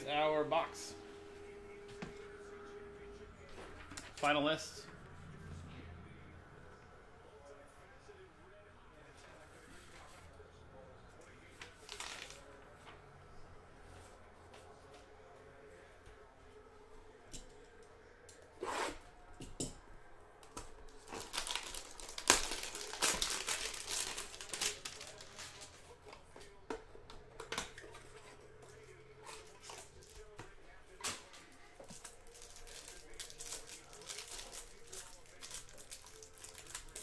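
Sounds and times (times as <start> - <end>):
cellophane crinkling and tearing: 11.8 - 12.5, 20.9 - 25.9, 31.8 - 37.0.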